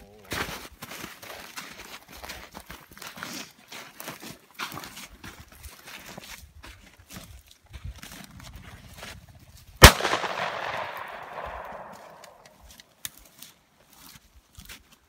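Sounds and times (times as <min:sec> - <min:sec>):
shotgun shot: 0:09.8 - 0:12.5.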